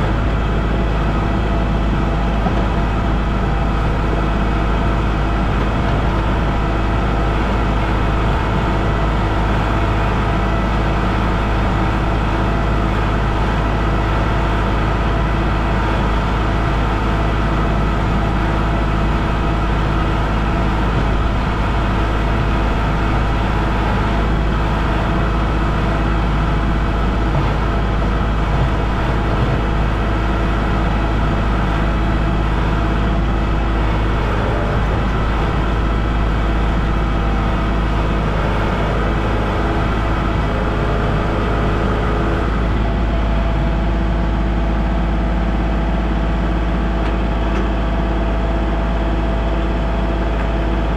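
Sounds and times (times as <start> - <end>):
tractor engine running: 0.0 - 50.9.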